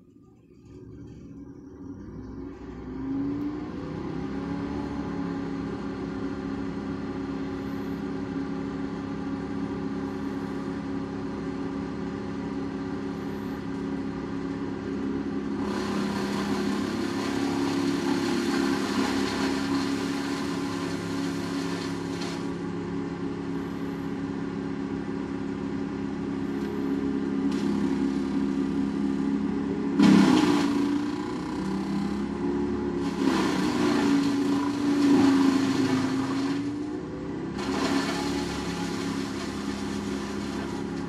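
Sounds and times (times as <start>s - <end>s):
wood chipper engine running: 0.0s - 41.0s
wood chipper chipping branches: 13.0s - 22.9s, 26.4s - 41.0s.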